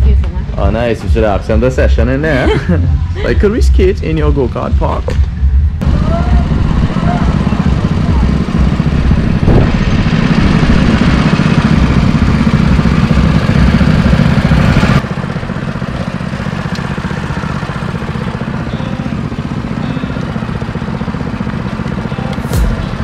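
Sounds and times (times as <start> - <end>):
go-kart engines running: 0.0 - 23.0.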